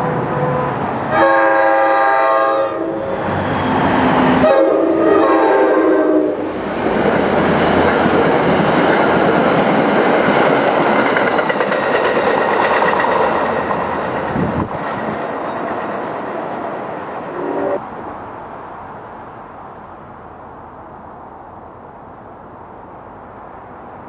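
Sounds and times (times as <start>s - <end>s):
train rumbling past: 0.0s - 24.0s
train horn blasts: 0.4s - 3.3s, 4.4s - 6.5s, 17.3s - 17.8s
wheels clicking over rail joints: 6.8s - 17.2s.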